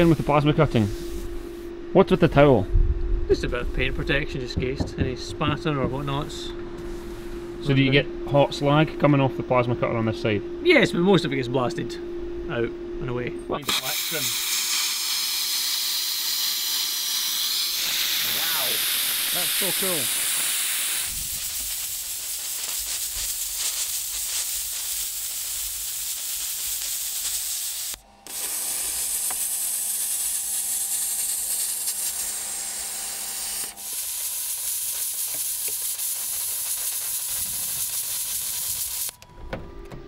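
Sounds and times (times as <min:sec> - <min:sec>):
faint steady hum: 0:00.0 - 0:15.6
plasma cutter arc hissing: 0:13.6 - 0:39.2.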